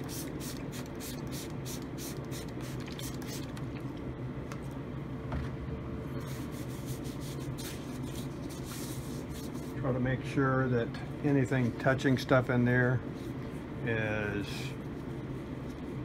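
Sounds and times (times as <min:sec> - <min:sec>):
spray bottle squirting: 0:00.0 - 0:03.6
steady low hum: 0:00.0 - 0:16.0
gloved hands rubbing skin: 0:06.2 - 0:09.8.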